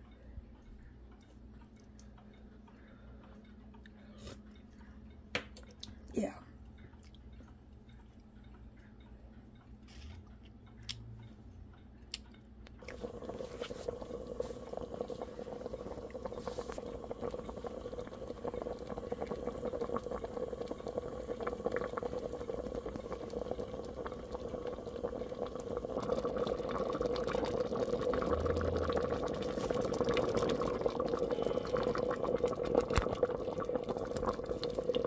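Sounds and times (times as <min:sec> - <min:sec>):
steady appliance hum: 0:00.0 - 0:35.0
gravy bubbling and popping: 0:12.7 - 0:35.0.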